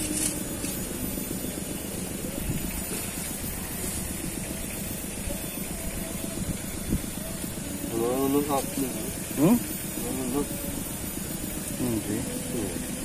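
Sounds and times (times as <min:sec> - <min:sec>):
wind buffeting microphone: 0:01.6 - 0:07.9.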